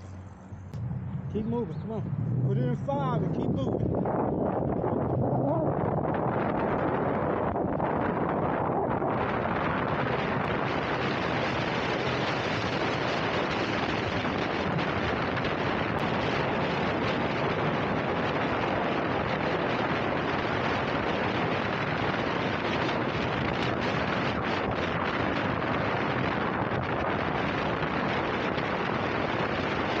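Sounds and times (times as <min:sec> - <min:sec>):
wind rushing on microphone: 0:00.0 - 0:30.0.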